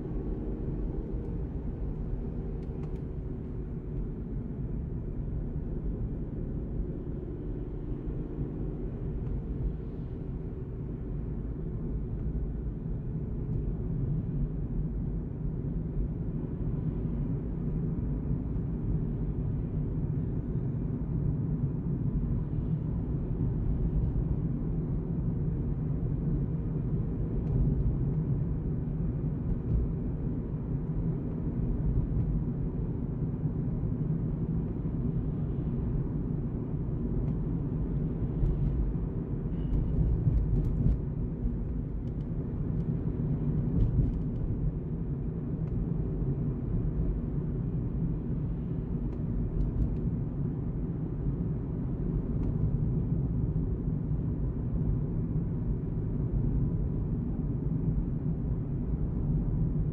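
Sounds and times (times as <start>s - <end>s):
car driving on highway: 0.0s - 59.9s.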